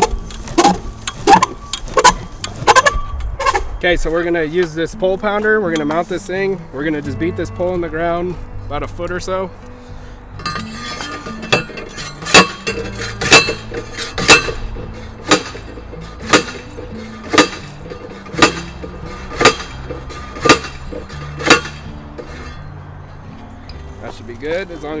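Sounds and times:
post driver clanking on steel post: 10.4 - 22.8.

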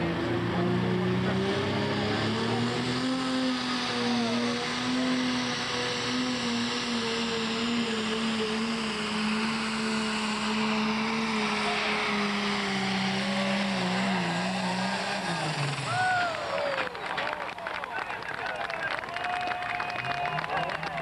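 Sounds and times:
diesel engine at full throttle: 0.0 - 21.0.

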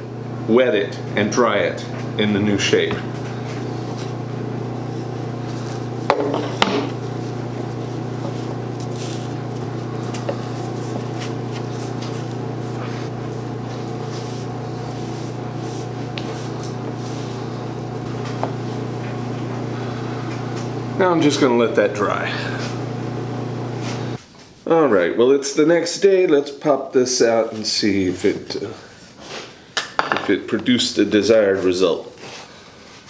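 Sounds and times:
steady low hum: 0.0 - 24.2
hands rubbing wet felt: 4.9 - 6.1, 6.9 - 18.8.

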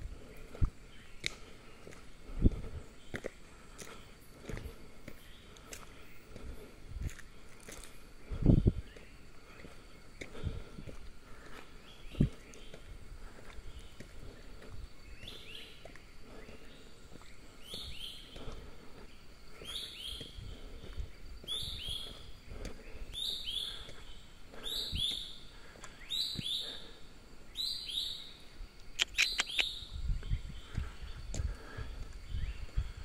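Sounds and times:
bird calling: 11.3 - 30.0
sharp clicks: 28.8 - 29.7.

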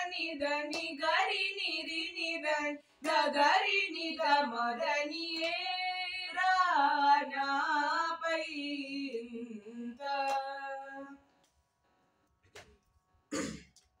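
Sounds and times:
girl and boy singing: 0.0 - 11.2
hand clap: 0.6 - 1.3, 3.0 - 3.3, 5.2 - 5.8, 10.2 - 10.6, 12.4 - 12.8.

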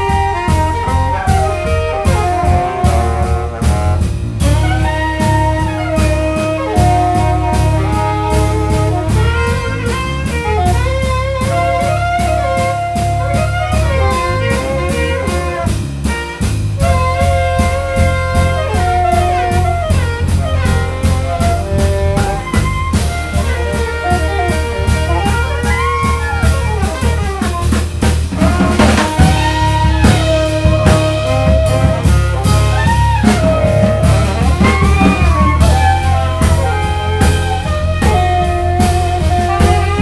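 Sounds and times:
bass: 0.0 - 40.0
drum kit cymbals: 0.0 - 40.0
piano: 0.0 - 40.0
saxophone melody: 0.0 - 40.0.

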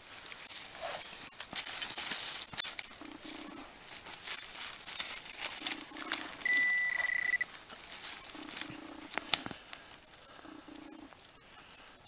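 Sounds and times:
digging tool scraping soil and leaves: 0.0 - 12.0
metal detector beep: 5.9 - 7.5.

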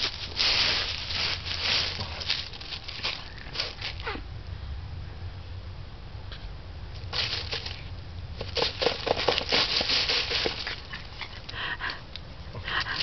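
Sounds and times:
broom sweeping dry leaves: 0.0 - 4.2, 7.1 - 11.3
puppy sound: 3.6 - 4.3.

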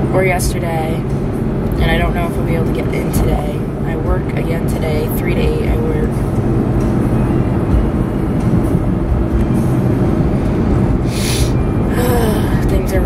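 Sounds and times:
car driving rumble inside cabin: 0.0 - 13.0.

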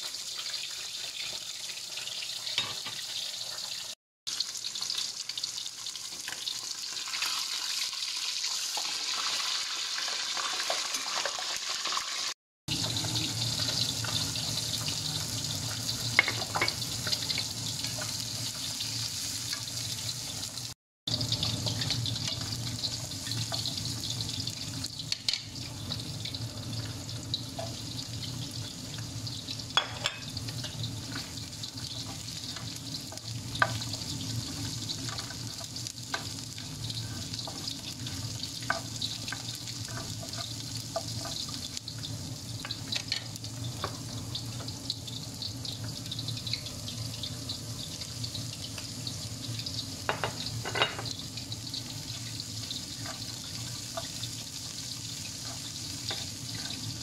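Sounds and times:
hot oil sizzling: 0.0 - 57.0
wooden spatula stirring in pan: 31.1 - 41.7.

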